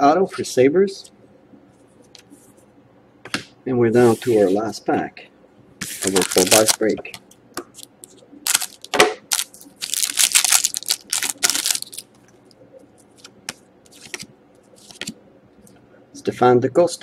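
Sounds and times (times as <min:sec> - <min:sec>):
cards clicking and rustling: 0:06.0 - 0:07.0, 0:07.8 - 0:12.0
foil wrapper crinkling: 0:06.0 - 0:07.0, 0:07.8 - 0:12.1.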